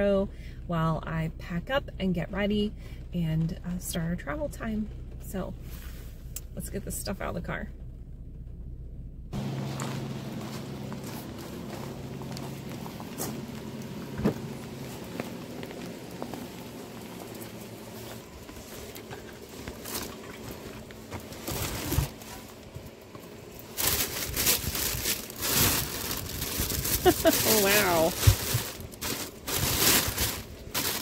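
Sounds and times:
knocks and clicks of groceries: 0:14.1 - 0:14.5, 0:23.7 - 0:31.0
plastic bags rustling: 0:14.6 - 0:31.0.

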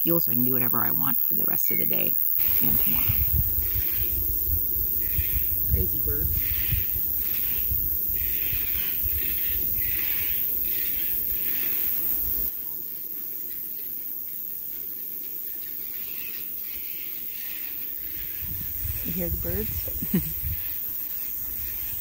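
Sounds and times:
steady hiss: 0:00.0 - 0:22.0
birds calling: 0:01.7 - 0:12.5, 0:15.8 - 0:22.0
wind rumbling on microphone: 0:02.4 - 0:12.5, 0:18.0 - 0:22.0.

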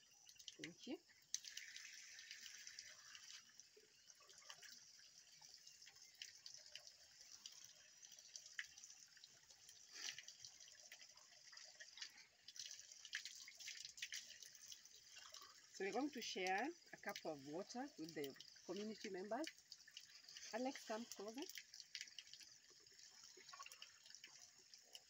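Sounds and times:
water drips: 0:00.0 - 0:25.0
water splashing onto tiled basin: 0:00.0 - 0:25.0.

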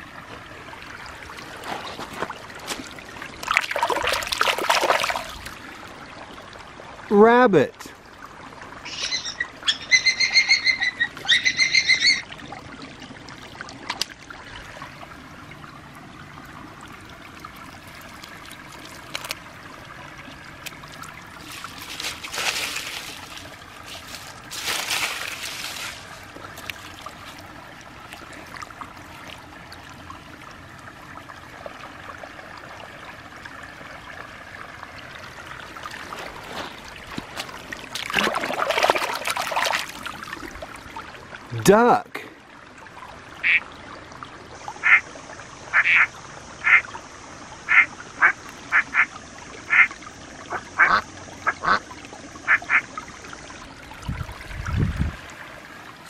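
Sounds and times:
stream trickling: 0:00.0 - 0:56.0
hands squelching in wet mud: 0:20.6 - 0:27.4, 0:35.8 - 0:40.4.

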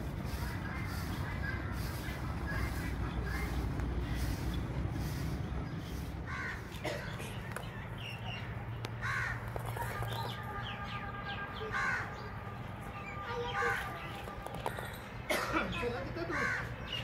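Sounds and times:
harsh caw-like bird calls: 0:00.3 - 0:05.2, 0:05.8 - 0:12.4, 0:15.7 - 0:17.0.

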